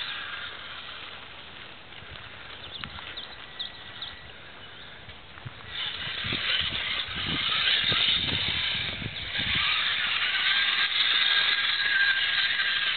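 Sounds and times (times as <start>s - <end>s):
small electric motor whining: 0.0s - 1.2s, 5.6s - 12.9s.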